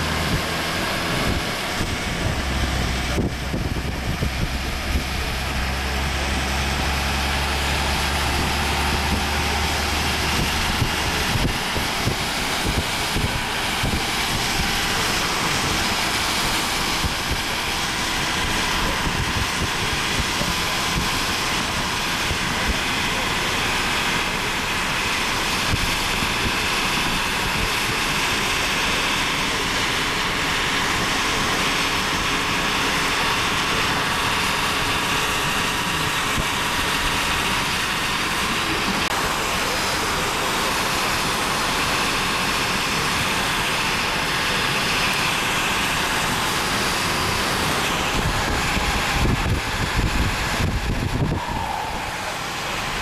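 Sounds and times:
wind rushing past car: 0.0 - 23.0, 45.4 - 53.0
wind buffeting microphone: 0.0 - 53.0.

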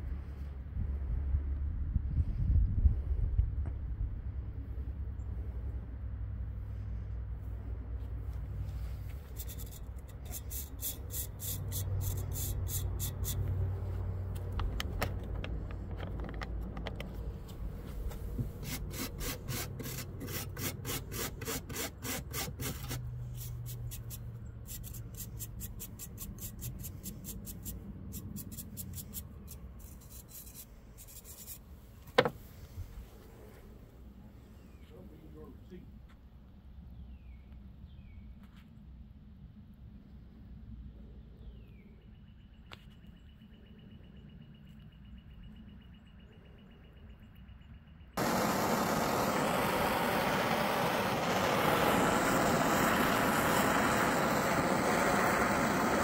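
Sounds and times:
wire wheel rasping scrapes: 9.2 - 13.5, 18.6 - 31.7
motor hum: 48.2 - 56.0.

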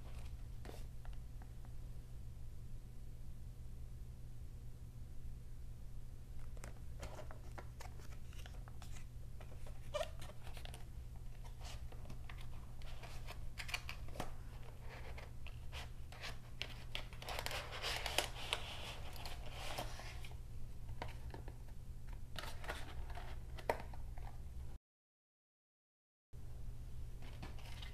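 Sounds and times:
steady low hum: 0.0 - 24.8.

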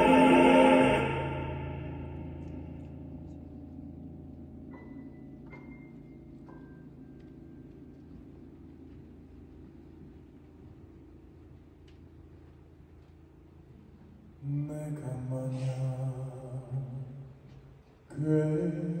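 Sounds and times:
male vocal group singing chord: 0.0 - 2.4
low sustained keyboard chord: 0.0 - 5.4.

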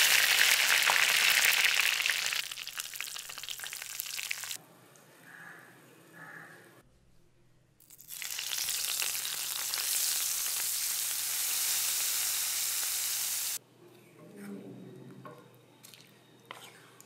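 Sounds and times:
hot oil sizzling: 0.0 - 4.6, 7.9 - 13.6.

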